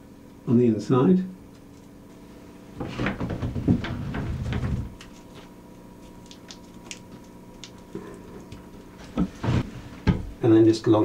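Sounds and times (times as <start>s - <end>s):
handling rustling and knocks: 2.7s - 6.2s, 7.0s - 10.4s.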